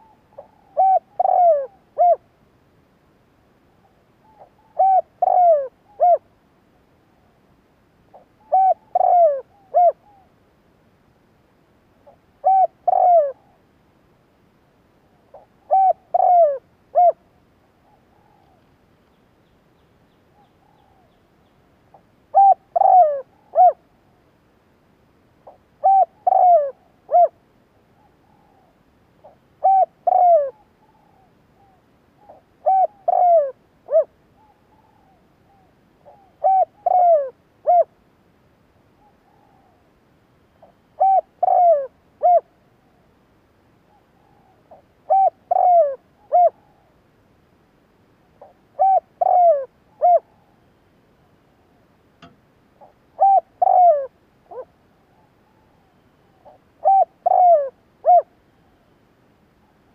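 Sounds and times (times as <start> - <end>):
dove cooing: 0.0 - 2.2, 3.8 - 6.3, 8.1 - 10.3, 12.0 - 13.6, 15.1 - 18.7, 21.9 - 23.9, 25.4 - 38.0, 40.6 - 43.0, 43.9 - 47.0, 48.4 - 50.8, 52.8 - 58.8.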